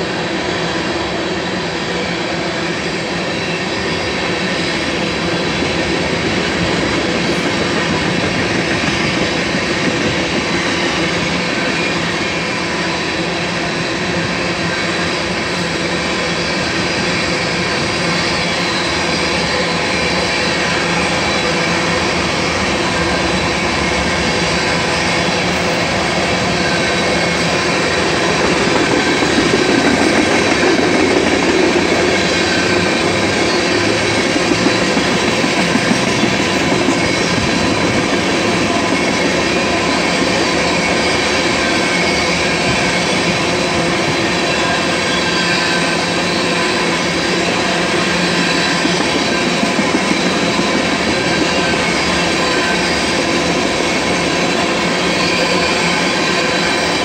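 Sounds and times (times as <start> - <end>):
freight train rolling past: 0.0 - 57.0
steel wheels roaring on rail: 0.0 - 57.0
high whining tones: 25.6 - 42.8
sharp clacks: 27.4 - 41.0.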